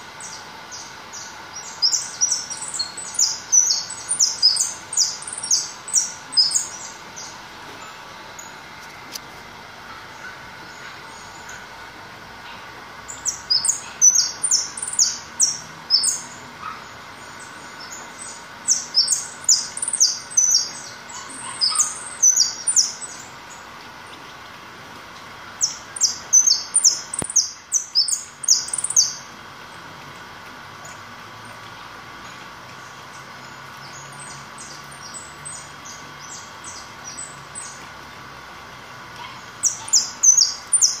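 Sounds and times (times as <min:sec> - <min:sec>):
goldfinch singing: 0:00.2 - 0:08.6, 0:13.1 - 0:24.3, 0:25.6 - 0:29.3, 0:39.3 - 0:41.0.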